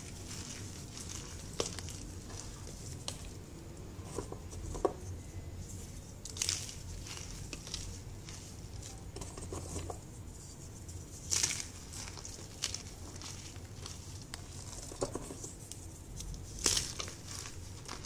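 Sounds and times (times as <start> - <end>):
chalk crunching and crumbling: 0.0 - 18.0.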